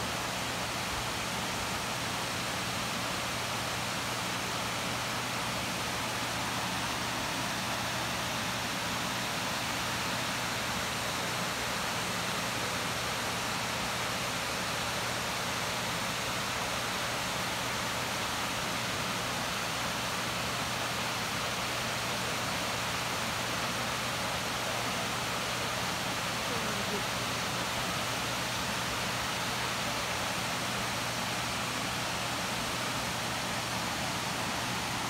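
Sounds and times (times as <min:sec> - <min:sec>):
waterfall rushing: 0:22.0 - 0:35.0.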